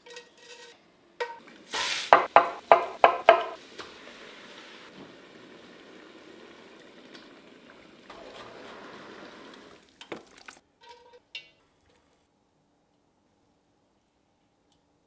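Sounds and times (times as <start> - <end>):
food sizzling in a pot: 1.6 - 10.6.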